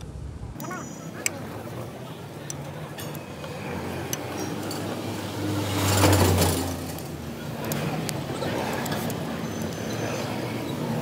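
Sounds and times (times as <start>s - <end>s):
vehicle passing by: 3.4s - 11.0s.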